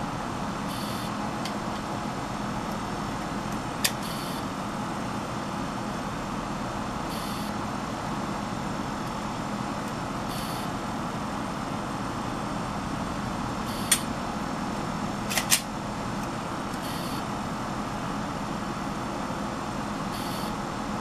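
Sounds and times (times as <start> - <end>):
sharp high click: 13.9 - 14.1.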